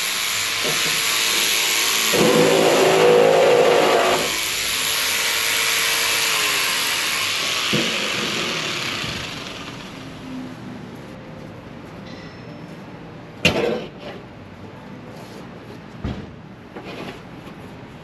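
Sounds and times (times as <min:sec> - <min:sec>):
jigsaw cutting and winding down: 0:00.0 - 0:10.0.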